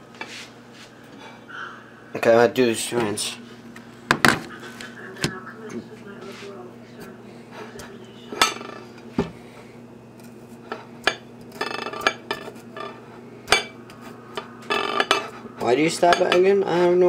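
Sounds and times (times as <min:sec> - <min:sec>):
fork clinking against plate: 0:11.1 - 0:15.3.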